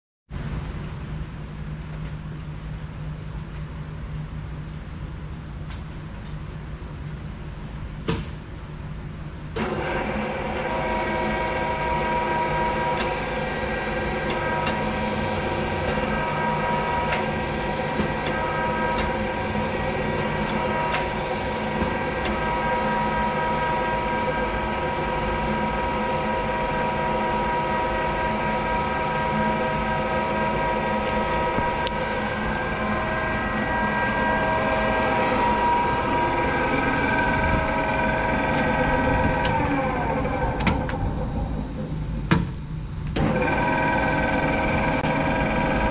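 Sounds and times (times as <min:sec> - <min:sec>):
drill press humming: 0:09.5 - 0:45.9.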